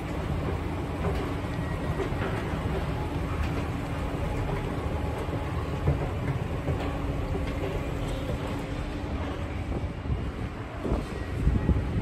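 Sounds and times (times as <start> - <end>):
escalator machinery rumbling: 0.0 - 12.0.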